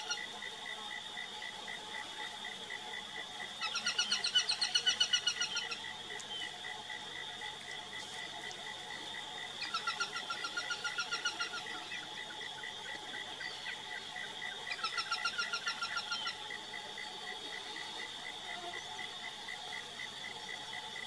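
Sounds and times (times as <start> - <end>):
steady high-pitched buzz: 0.0 - 21.0
falcon chattering calls: 9.6 - 11.7.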